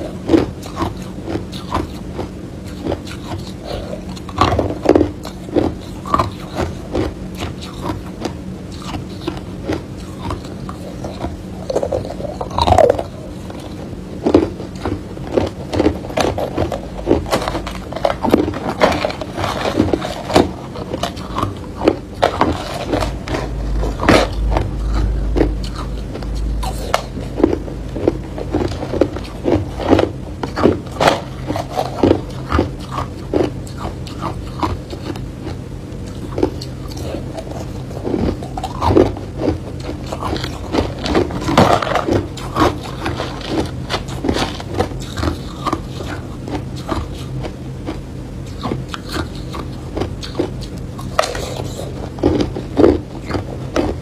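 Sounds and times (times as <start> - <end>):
low rumble: 22.6 - 31.5.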